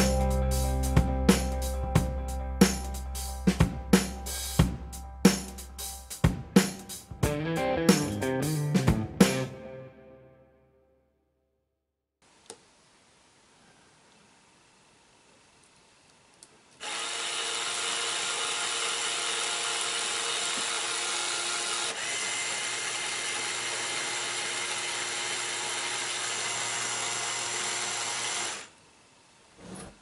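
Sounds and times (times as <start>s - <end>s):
small motor whirring: 16.8s - 28.8s.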